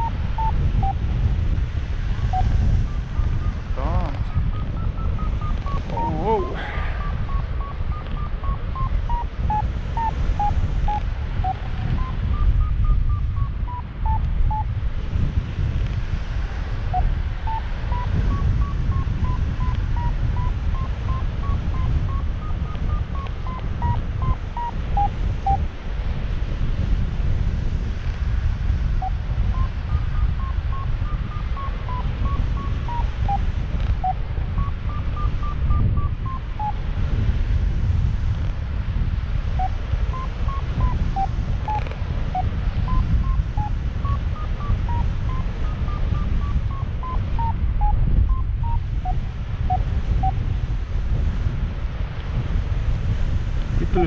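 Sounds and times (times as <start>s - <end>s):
variometer beeping: 0.0s - 14.8s, 16.7s - 25.7s, 28.8s - 37.2s, 39.5s - 50.5s
wind rushing over microphone: 0.0s - 54.0s.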